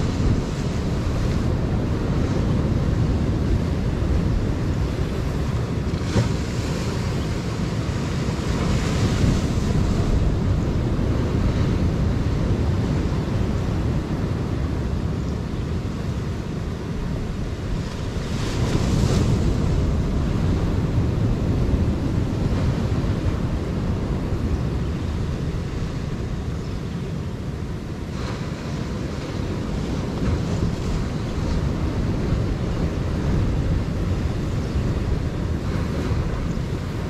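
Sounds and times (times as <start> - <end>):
wave breaking: 0.0 - 12.4
surf on rocky shore: 0.0 - 37.0
wind buffeting microphone: 0.0 - 37.0.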